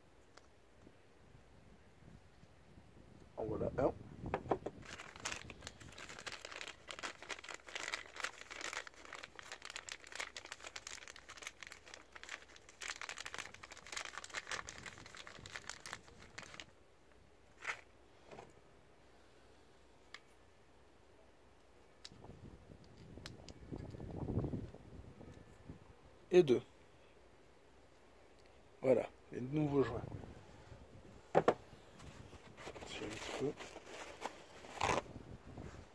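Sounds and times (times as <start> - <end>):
plastic packet crinkling: 4.8 - 16.7.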